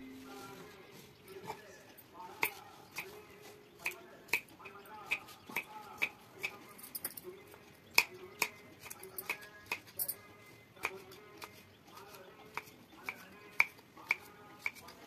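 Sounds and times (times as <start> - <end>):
knife chopping on wooden board: 5.1 - 6.6, 10.8 - 15.0.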